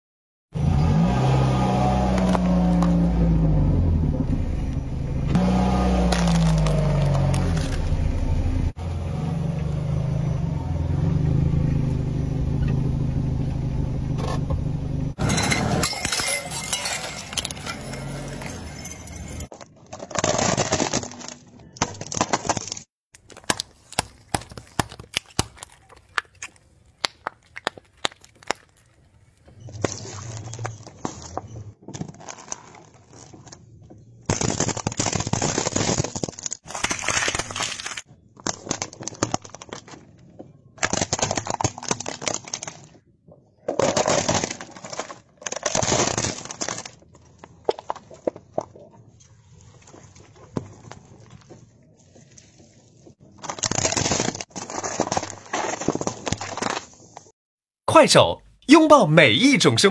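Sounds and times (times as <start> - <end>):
plastic crunching under tyre: 1.7 - 3.2, 5.3 - 8.4, 15.2 - 57.3
plastic toys snapping: 21.8 - 28.9.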